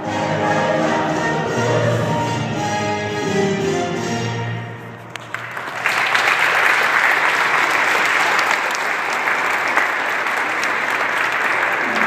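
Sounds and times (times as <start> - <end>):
audience applause: 5.1 - 12.0.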